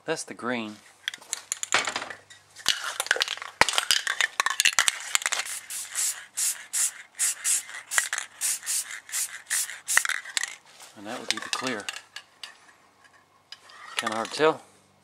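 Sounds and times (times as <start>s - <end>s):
spray can mixing ball rattling: 2.6s - 10.6s
spray can handling clicks: 4.0s - 10.6s.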